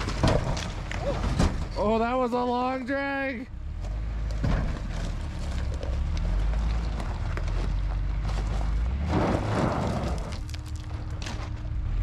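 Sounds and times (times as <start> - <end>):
engine running under load: 0.0 - 12.0
tyres crunching on stones: 0.0 - 12.0
wheel spinning and spraying gravel: 4.9 - 11.6.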